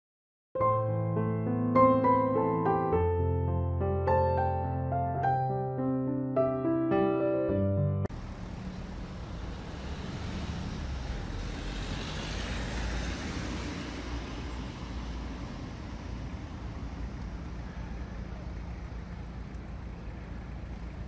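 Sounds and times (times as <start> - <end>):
hum of road traffic: 8.0 - 21.0
vehicle passing close: 8.1 - 17.7.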